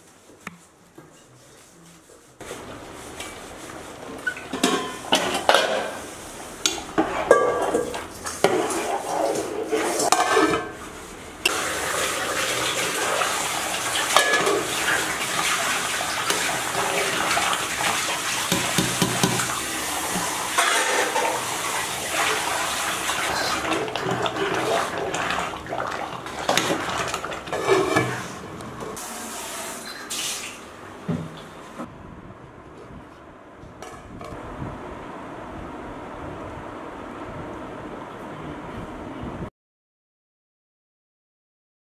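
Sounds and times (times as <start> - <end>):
ladle stirring: 2.4 - 29.5
water pouring in a metal pot: 11.5 - 28.4.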